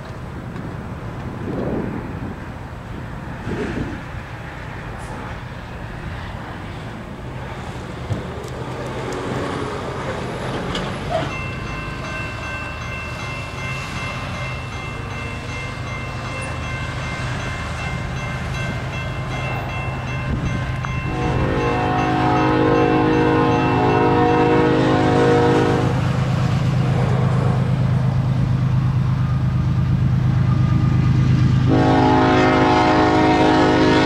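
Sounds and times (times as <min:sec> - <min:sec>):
distant freight train rumble: 0:00.0 - 0:34.0
locomotive air horn: 0:21.0 - 0:26.1, 0:31.7 - 0:34.0.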